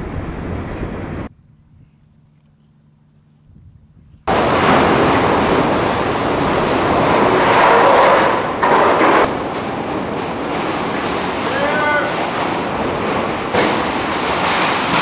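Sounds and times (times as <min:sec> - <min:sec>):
strong wind blowing: 0:00.0 - 0:02.0, 0:03.5 - 0:15.0
driving rain: 0:04.3 - 0:15.0.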